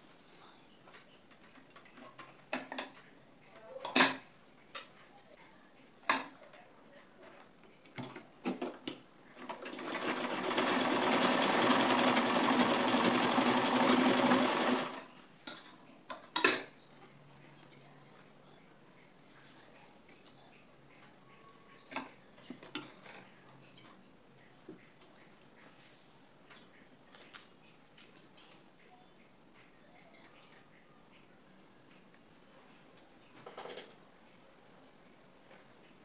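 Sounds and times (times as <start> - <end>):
sewing machine stitching: 9.4 - 15.1.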